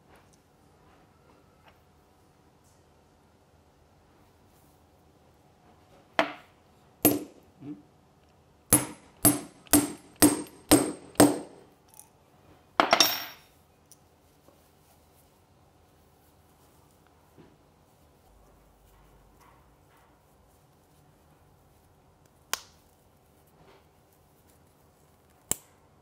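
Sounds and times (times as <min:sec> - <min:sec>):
hammer striking metal punch: 0:07.0 - 0:07.4, 0:08.7 - 0:11.6.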